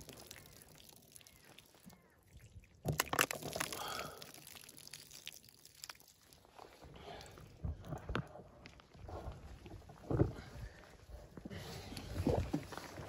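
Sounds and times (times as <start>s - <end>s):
water pouring onto ground: 0.0s - 7.4s.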